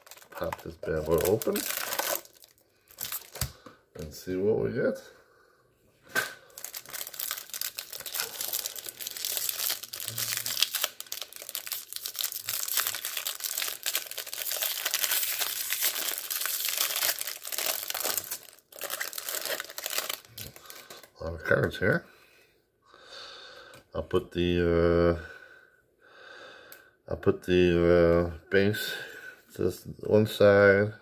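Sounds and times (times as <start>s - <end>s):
plastic wrapper crinkling: 0.0s - 3.6s, 6.5s - 21.2s.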